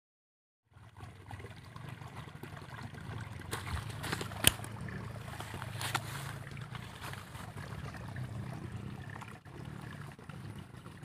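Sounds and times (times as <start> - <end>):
rustling in grass: 5.2 - 7.5.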